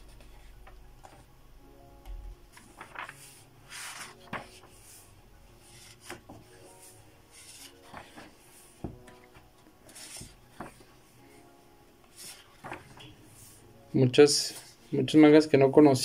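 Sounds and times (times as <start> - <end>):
magazine pages turning: 2.5 - 11.4, 12.0 - 13.6.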